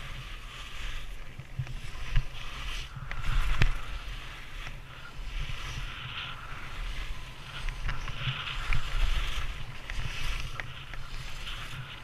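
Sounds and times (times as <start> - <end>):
skis scraping over snow: 0.0 - 12.0
wind buffeting microphone: 0.0 - 12.0.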